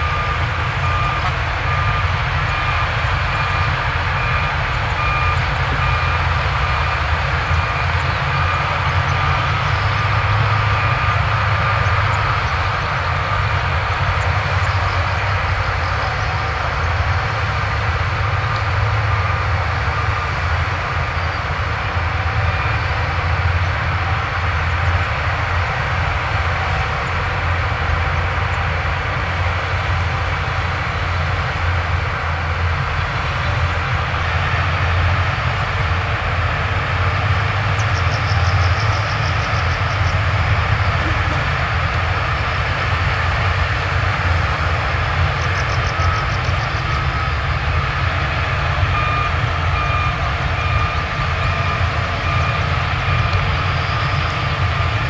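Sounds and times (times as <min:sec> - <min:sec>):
reversing alarm beeping: 0:00.0 - 0:14.3, 0:36.7 - 0:55.0
heavy diesel machinery running: 0:00.0 - 0:55.0.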